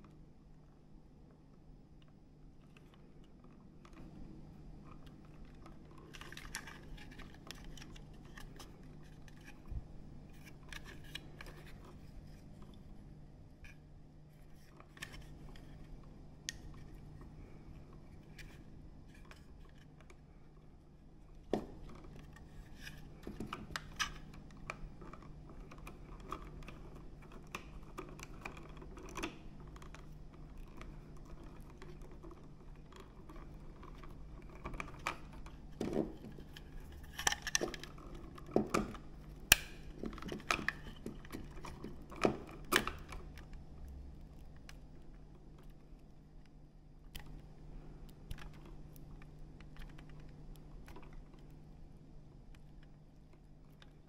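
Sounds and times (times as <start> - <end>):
plastic and wire clicks and rattles: 4.8 - 12.8, 21.3 - 54.0.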